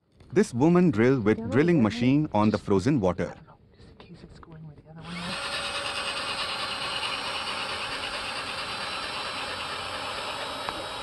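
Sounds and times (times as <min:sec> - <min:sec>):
cordless drill boring into ice: 0:05.0 - 0:11.0.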